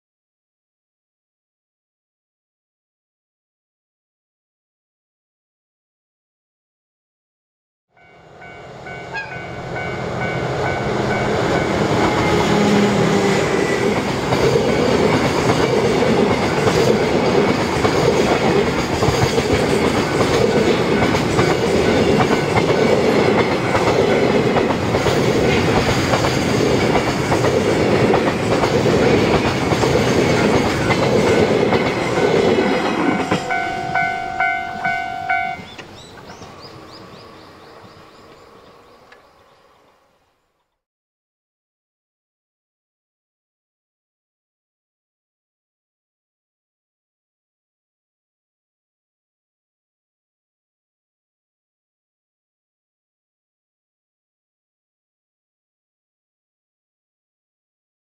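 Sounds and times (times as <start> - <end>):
locomotive horn: 8.0 - 13.8, 32.6 - 35.7
diesel locomotive engine running: 8.3 - 39.2
freight train clacking over rail joints: 8.4 - 39.2.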